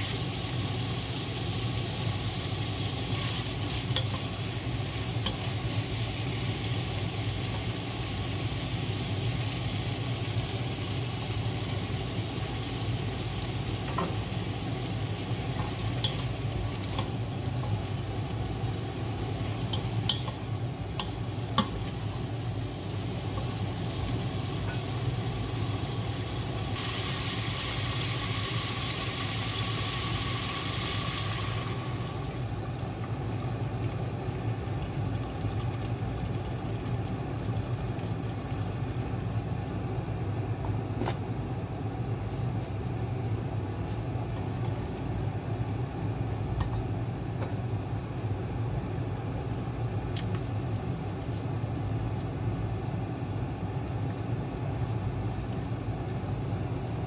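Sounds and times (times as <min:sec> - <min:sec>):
meat sizzling in a pot: 0:00.0 - 0:36.0.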